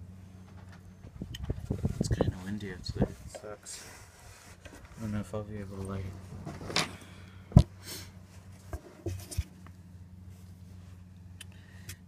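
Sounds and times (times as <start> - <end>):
knocks and scrapes of handling: 1.4 - 9.7.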